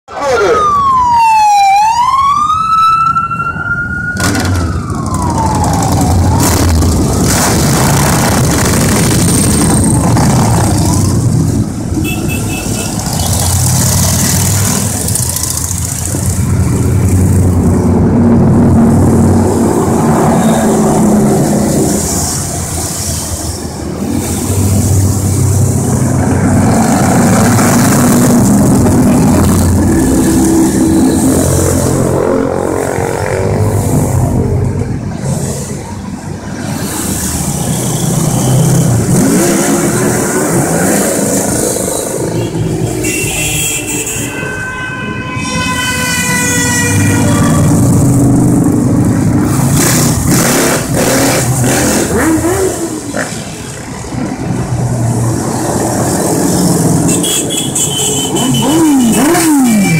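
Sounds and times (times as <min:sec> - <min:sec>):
police siren wailing: 0:00.1 - 0:07.2.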